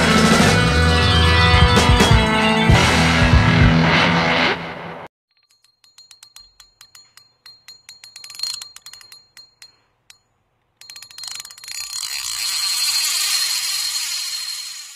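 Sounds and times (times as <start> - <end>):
light clicks with ringing tone: 5.3 - 12.6.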